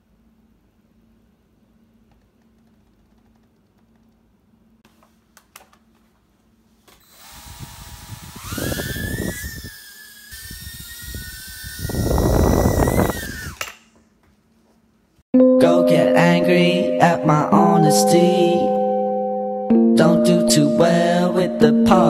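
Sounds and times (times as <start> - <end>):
quadcopter motors whining: 7.0 - 13.8.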